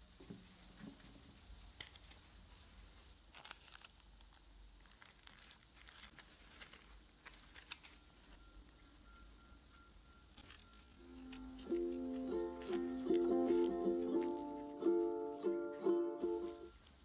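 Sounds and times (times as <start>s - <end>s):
tissue paper rustling: 1.8s - 8.4s, 11.1s - 17.0s.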